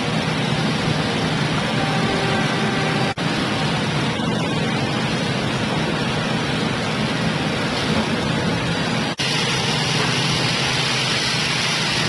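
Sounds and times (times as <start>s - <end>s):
low hum: 0.0s - 9.1s
running machinery rush: 0.0s - 12.0s.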